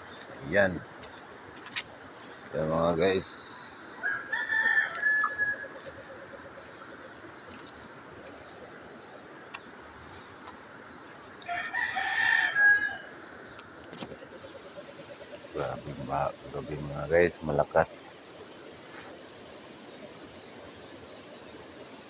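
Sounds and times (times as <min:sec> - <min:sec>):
insects chirping: 0:00.0 - 0:22.0
rooster crowing: 0:03.7 - 0:06.6, 0:11.4 - 0:13.2.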